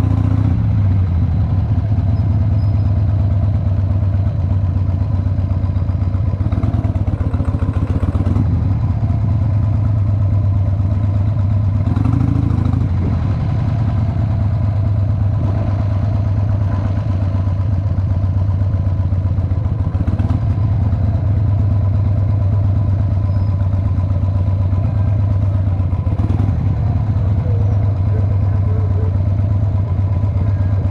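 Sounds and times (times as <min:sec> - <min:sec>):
motorcycle engine rumbling: 0:00.0 - 0:30.9.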